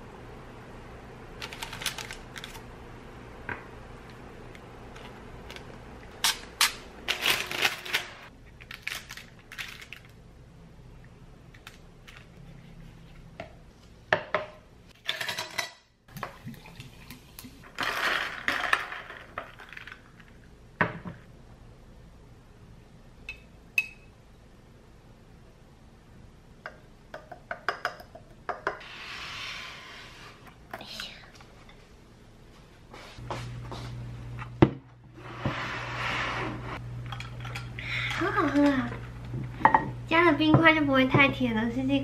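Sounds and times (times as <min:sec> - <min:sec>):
low steady hum: 0:00.0 - 0:29.0, 0:29.7 - 0:42.0
tongs and dishes clinking: 0:37.0 - 0:38.7.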